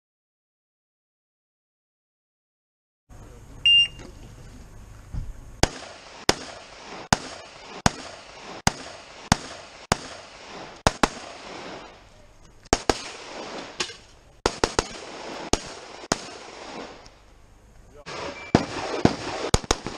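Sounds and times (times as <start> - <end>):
shot timer beep: 3.6 - 4.1, 18.3 - 18.7
rifle shots: 5.6 - 12.1, 12.7 - 17.0, 18.0 - 19.9.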